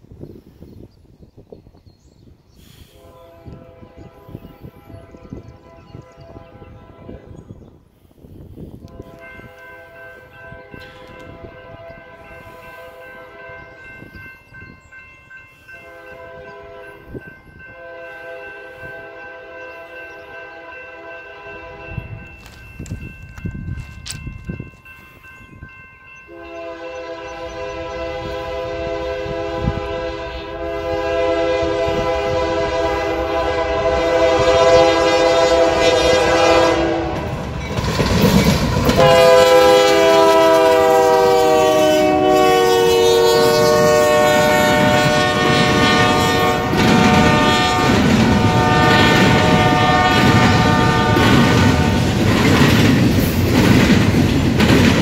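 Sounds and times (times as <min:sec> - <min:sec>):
locomotive horn blasts: 0:02.8 - 0:07.5, 0:08.8 - 0:13.9, 0:15.8 - 0:22.6, 0:26.3 - 0:37.4, 0:38.9 - 0:52.2
locomotive rumble: 0:08.4 - 0:55.0
train cars clickety-clack: 0:08.8 - 0:24.9, 0:30.7 - 0:55.0.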